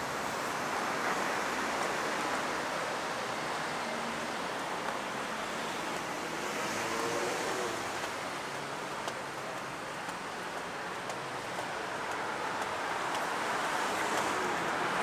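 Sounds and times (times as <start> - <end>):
town background noise: 0.0 - 15.0
traffic: 0.0 - 15.0
faint light ticks: 9.0 - 13.3.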